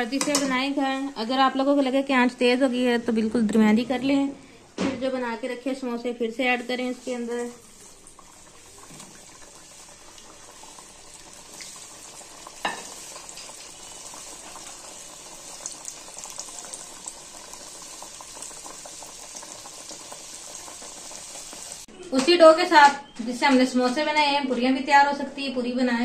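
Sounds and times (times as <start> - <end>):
deep-frying sizzle with pops: 0.0 - 2.1, 6.2 - 22.3.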